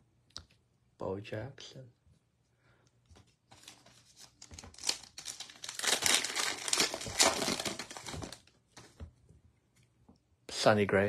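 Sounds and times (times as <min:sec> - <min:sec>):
wrapper crinkling: 0:03.5 - 0:08.5.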